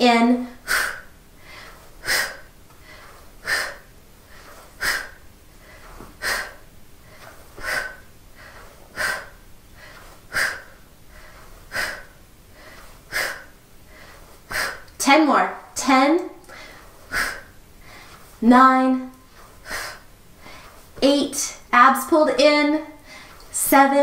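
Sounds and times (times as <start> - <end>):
woman's forceful breaths: 0.5 - 15.0, 16.4 - 18.4, 19.2 - 21.0, 22.9 - 23.6.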